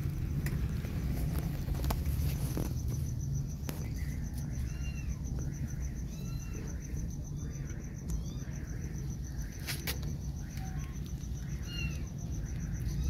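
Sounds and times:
kittens mewing: 6.0 - 6.9.

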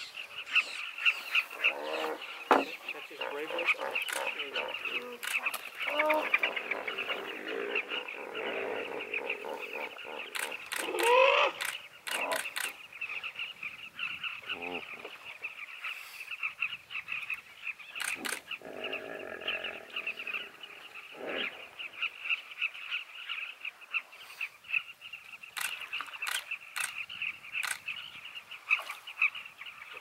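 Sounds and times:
deep drawn-out bird call: 0.0 - 25.0
bee-eaters chattering calls: 0.0 - 30.0
sharp knocks: 2.5 - 2.8.

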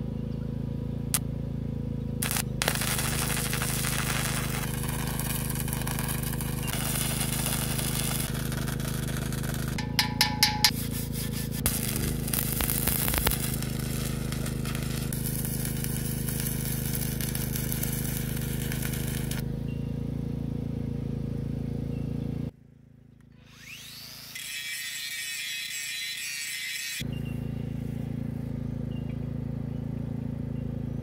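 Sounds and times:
steady low hum: 0.0 - 23.4
welding arc crackling and hissing: 2.2 - 19.4
hammer tapping on metal: 9.8 - 10.9.

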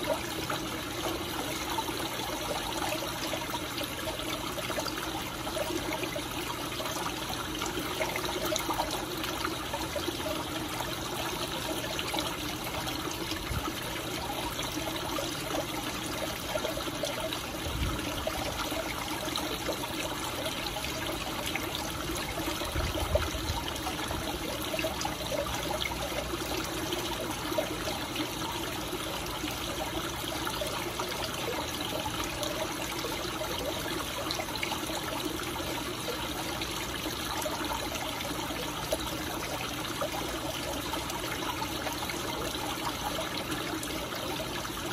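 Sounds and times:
water trickling into pond: 0.0 - 44.9.

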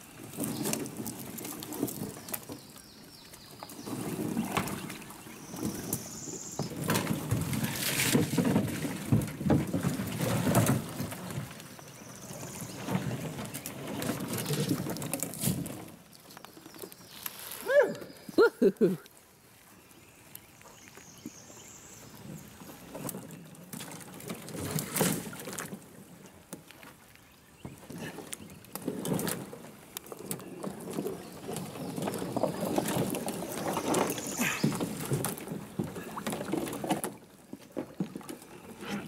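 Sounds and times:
water splashing and sloshing: 0.0 - 39.0
branches crackling: 9.8 - 19.3.

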